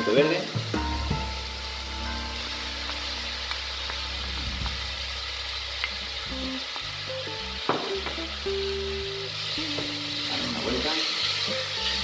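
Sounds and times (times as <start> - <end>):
vegetables sizzling in hot oil: 0.0 - 12.0
wooden spoon knocking on pot: 7.7 - 8.2.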